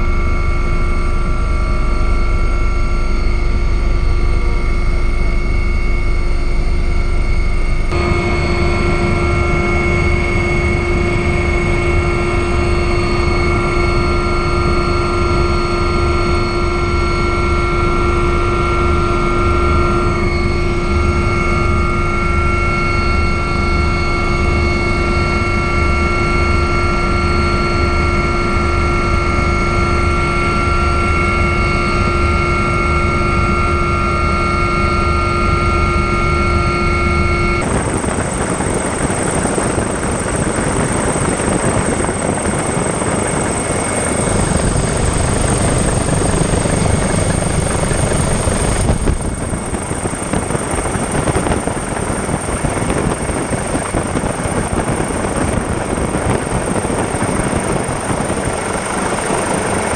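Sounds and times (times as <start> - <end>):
helicopter engine whine: 0.0 - 59.9
rotor wash and wind rushing: 37.0 - 59.9.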